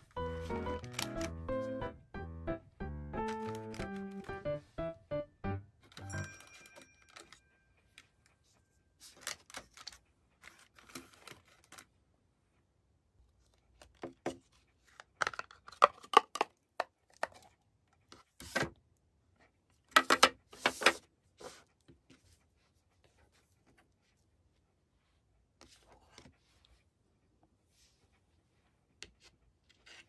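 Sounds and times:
paper liner rustling: 0.0 - 1.4, 3.3 - 4.4, 9.0 - 11.9
plastic trays clicking and rattling: 15.0 - 17.5, 19.9 - 21.0.

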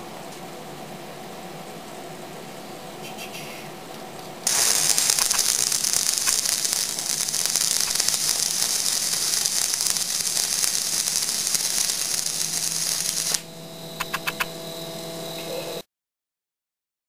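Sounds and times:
welding arc crackling hiss: 4.4 - 14.5.

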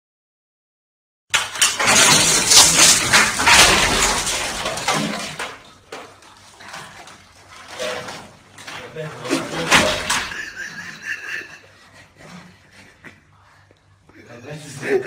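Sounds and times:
stepladder crashing on tiled floor: 1.3 - 11.6.

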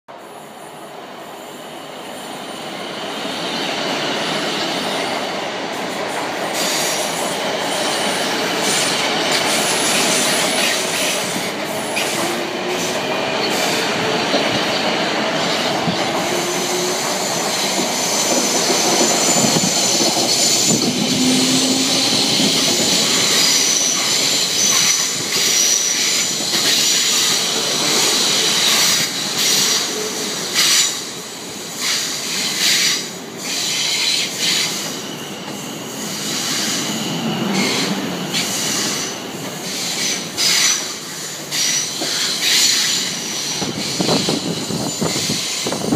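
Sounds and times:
train carriages rumbling past: 1.9 - 45.9
wheel squeal: 11.9 - 30.0.

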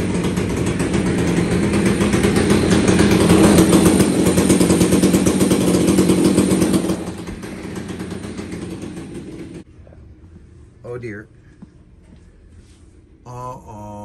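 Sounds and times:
chainsaw engine running: 0.0 - 9.6.

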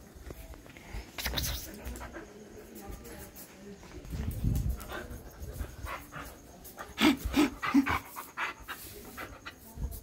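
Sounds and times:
dog panting and sniffing: 4.7 - 9.7.

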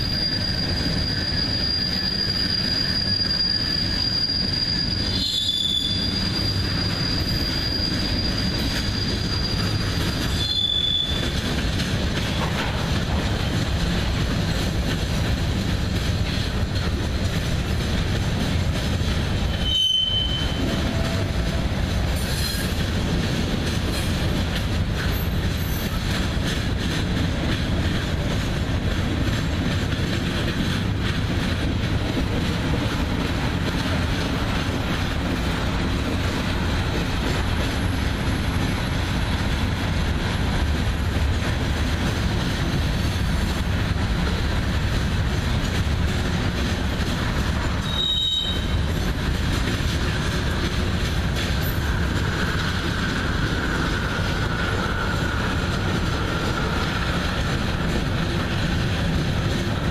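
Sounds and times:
high wheel squeal: 0.0 - 11.4, 19.4 - 21.4, 47.7 - 49.2
freight train wheels rumbling on rail: 0.0 - 59.9.

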